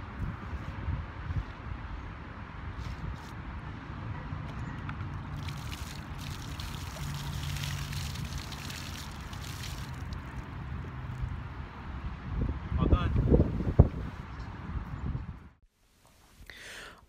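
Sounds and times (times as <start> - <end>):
water pouring and splashing on stone: 5.2 - 11.3.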